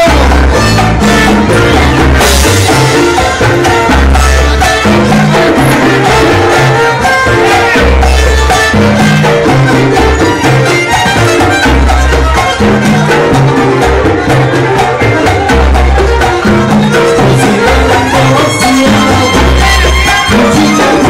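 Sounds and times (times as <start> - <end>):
congas and timbales: 0.0 - 21.0
deep bass notes: 0.0 - 21.0
latin jazz band playing: 0.0 - 21.0.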